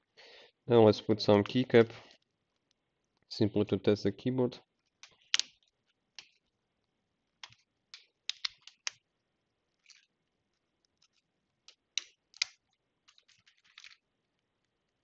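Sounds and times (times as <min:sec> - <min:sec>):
laptop key clicks: 0:07.4 - 0:09.0.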